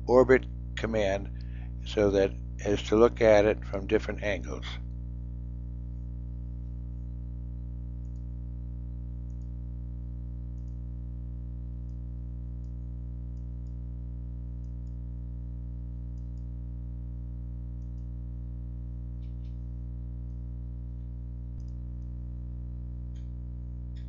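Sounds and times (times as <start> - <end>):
low electrical hum: 0.0 - 24.0
computer mouse clicks: 8.0 - 8.3, 9.3 - 9.5, 10.6 - 10.8, 16.2 - 16.5, 17.8 - 18.1, 21.6 - 21.8.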